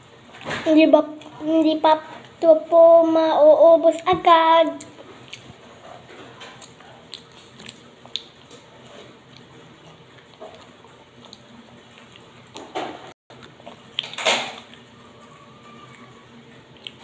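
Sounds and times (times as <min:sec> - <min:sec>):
chewing and crunching nuts: 0:04.8 - 0:12.7, 0:13.3 - 0:17.0.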